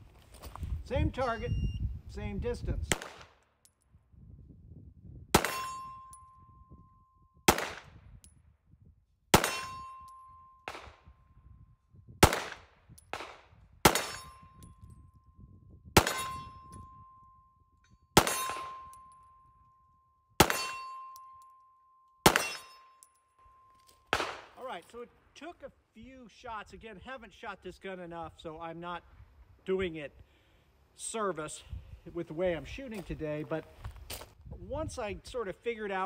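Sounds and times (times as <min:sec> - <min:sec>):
pistol shots: 0:02.9 - 0:03.4, 0:05.3 - 0:05.8, 0:07.5 - 0:07.9, 0:09.3 - 0:09.9, 0:10.7 - 0:11.1, 0:12.2 - 0:14.4, 0:16.0 - 0:16.5, 0:18.2 - 0:18.9, 0:20.4 - 0:20.9, 0:22.2 - 0:22.8, 0:24.1 - 0:24.6
steel plate ringing: 0:05.4 - 0:07.0, 0:09.4 - 0:10.7, 0:14.0 - 0:15.0, 0:16.0 - 0:24.0.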